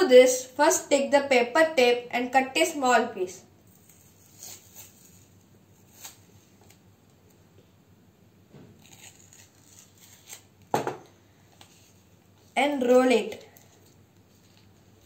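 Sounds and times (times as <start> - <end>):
paper tape ripping: 3.7 - 6.8, 8.8 - 10.7
paper tape rustling: 3.7 - 6.8, 8.8 - 10.6, 11.6 - 15.0.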